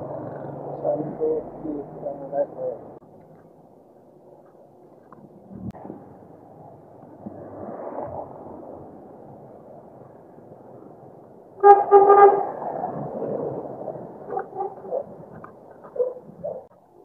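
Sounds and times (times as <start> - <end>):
background noise: 0.0 - 17.0
vehicle horn toots: 11.6 - 12.5.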